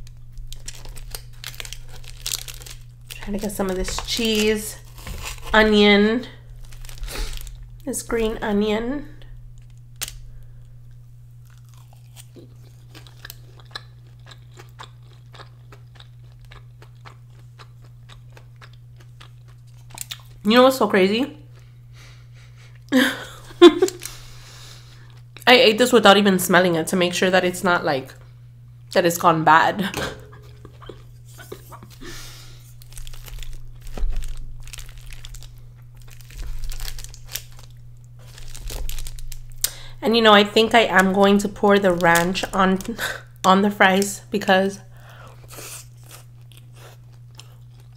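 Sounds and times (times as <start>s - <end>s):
foil tray crinkling: 0.0s - 8.6s, 30.5s - 44.1s
low hum: 0.0s - 47.9s.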